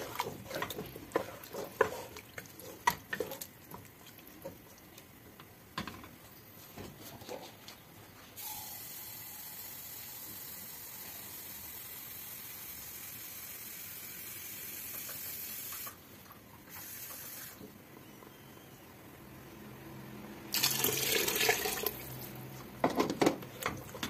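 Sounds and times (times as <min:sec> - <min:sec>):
tap water filling container: 0:20.5 - 0:22.0.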